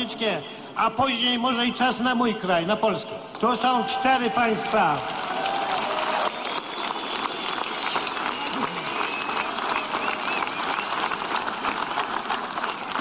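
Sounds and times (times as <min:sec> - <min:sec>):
crowd clapping and cheering: 0:03.9 - 0:13.0.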